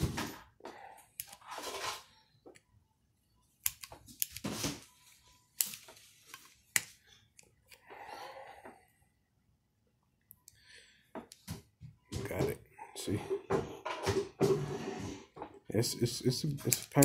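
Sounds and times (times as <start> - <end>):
plastic and metal parts clicking: 16.5 - 17.0.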